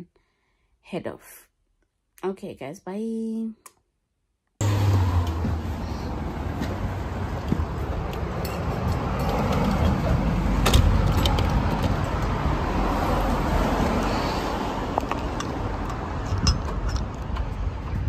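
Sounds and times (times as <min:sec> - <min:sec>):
road traffic rumble: 0:04.6 - 0:18.0
vehicle passing: 0:04.6 - 0:18.0.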